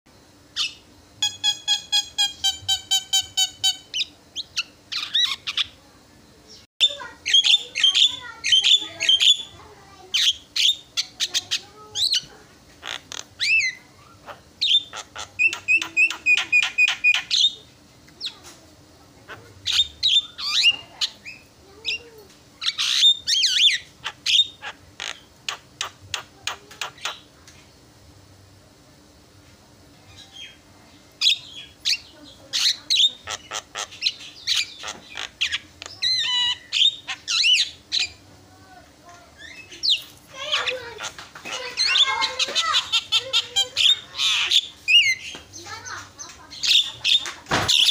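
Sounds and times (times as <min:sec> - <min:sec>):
myna bird calling: 0:00.5 - 0:05.8, 0:06.5 - 0:18.5, 0:19.2 - 0:27.3, 0:31.2 - 0:38.2, 0:39.4 - 0:47.9
bird calling: 0:06.5 - 0:09.6, 0:10.2 - 0:18.5, 0:31.2 - 0:38.2.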